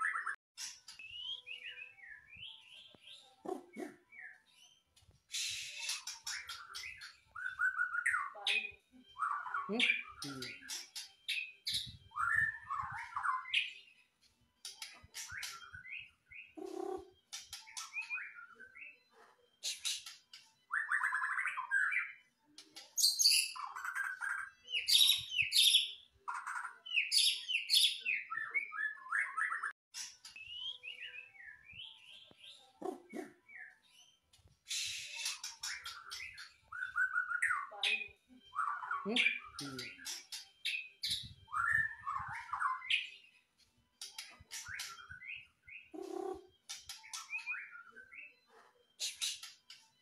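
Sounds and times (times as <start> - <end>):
bird singing whistles and trills: 0.0 - 13.9, 15.2 - 22.2, 23.0 - 43.3, 44.2 - 49.9.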